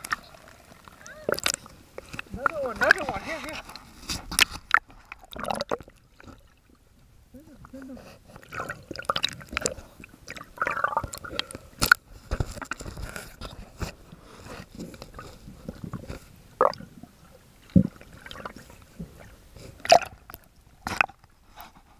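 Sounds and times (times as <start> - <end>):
water sloshing: 0.0 - 21.3
camera clicks and knocks underwater: 3.7 - 6.0, 9.1 - 14.0.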